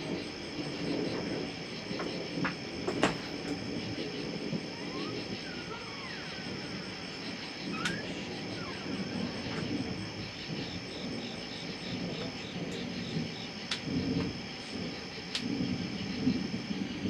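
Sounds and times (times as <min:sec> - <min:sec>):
crickets trilling: 0:00.0 - 0:17.0
low uneven rumble: 0:00.0 - 0:17.0
sharp ticks: 0:15.3 - 0:15.6.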